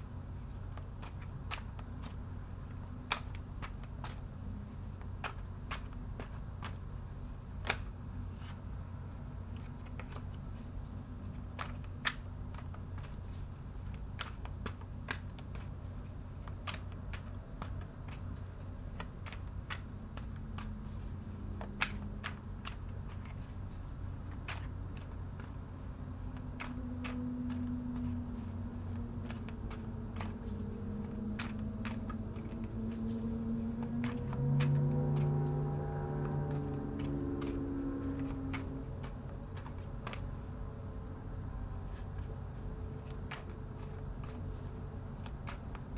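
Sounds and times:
steady low hum: 0.0s - 45.9s
cards being shuffled: 0.4s - 45.9s
ambient drone music: 30.0s - 39.1s.

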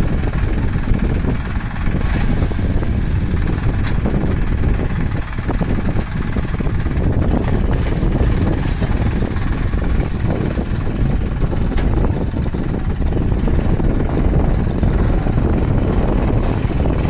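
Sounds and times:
tractor diesel engine under load: 0.0s - 17.0s
blade pushing soil: 0.2s - 17.0s.

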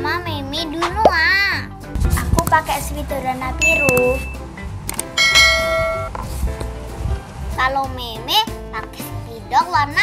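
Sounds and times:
soft background music: 0.0s - 10.0s
bright bell chime: 3.6s - 4.4s, 5.2s - 6.1s.

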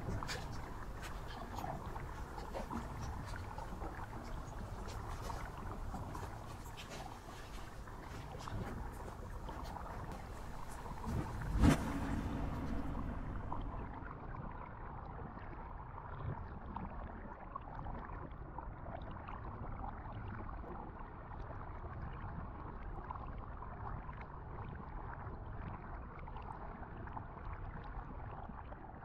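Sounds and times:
steady low rumbling: 0.0s - 15.0s.

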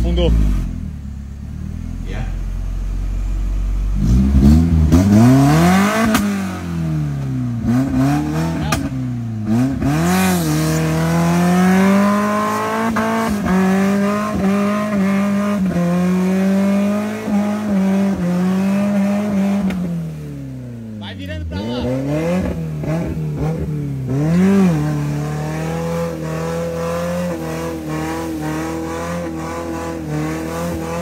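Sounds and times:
car engine revving hard: 3.9s - 31.0s.

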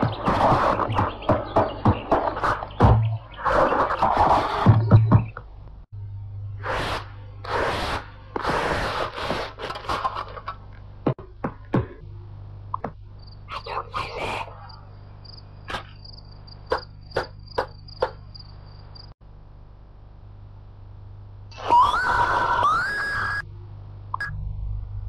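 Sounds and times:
low mains hum: 5.4s - 8.4s, 10.0s - 17.2s, 17.8s - 25.0s
crickets chirring: 13.1s - 19.2s.

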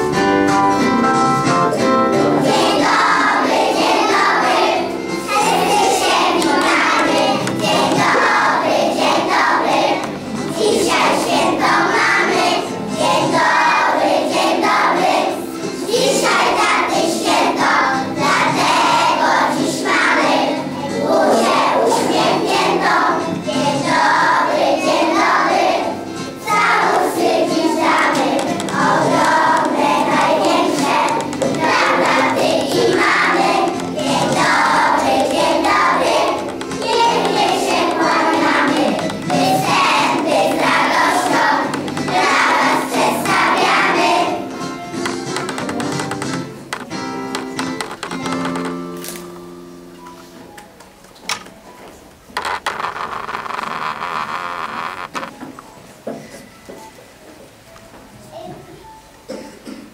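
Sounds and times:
children's choir singing: 0.0s - 47.9s.

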